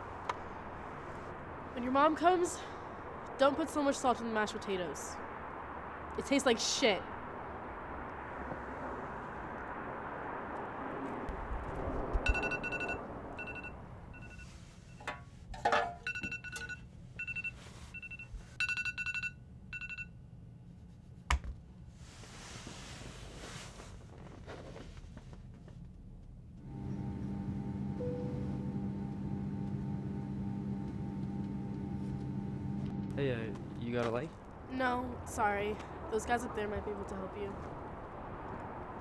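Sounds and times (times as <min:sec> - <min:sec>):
phone ringtone beeping: 0:12.2 - 0:14.5, 0:16.0 - 0:20.1.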